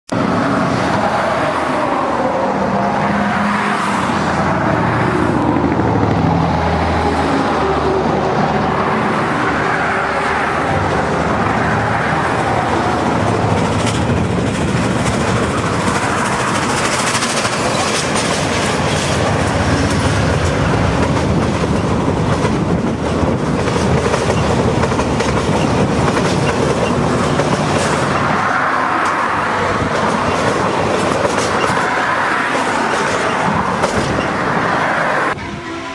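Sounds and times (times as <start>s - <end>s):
steam locomotive passing: 0.2s - 35.9s
clickety-clack of train wheels: 12.0s - 34.9s.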